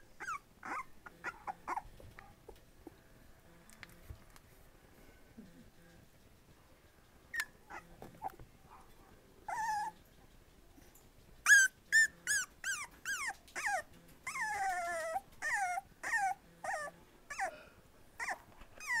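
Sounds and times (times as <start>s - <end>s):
puppy crying: 0.0s - 1.9s, 7.3s - 8.4s, 9.5s - 10.0s, 11.4s - 17.6s, 18.2s - 19.0s
puppy whining: 0.0s - 2.6s, 7.3s - 8.5s, 9.4s - 10.2s, 11.4s - 17.6s, 18.2s - 19.0s.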